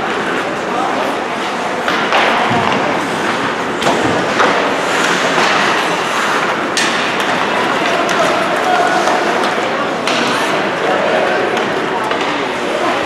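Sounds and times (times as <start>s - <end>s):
arena crowd noise: 0.0s - 13.0s
knocks against rink boards: 1.8s - 10.5s, 11.3s - 12.6s.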